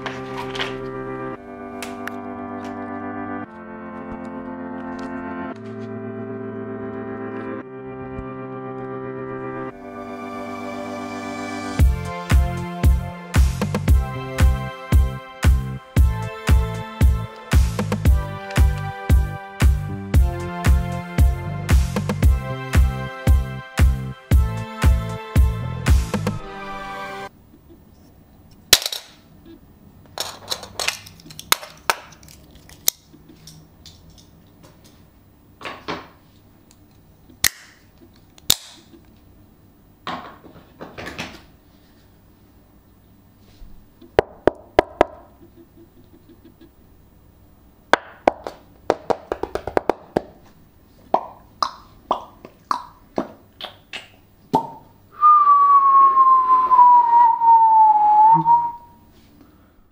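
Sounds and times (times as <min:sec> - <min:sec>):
person whistling descending note: 0:55.1 - 0:59.1.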